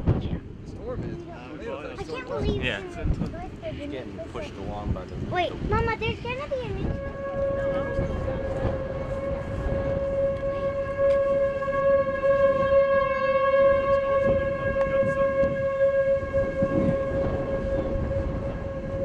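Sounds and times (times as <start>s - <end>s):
wind noise rumbling: 0.0s - 19.0s
warning siren steady tone: 6.4s - 19.0s.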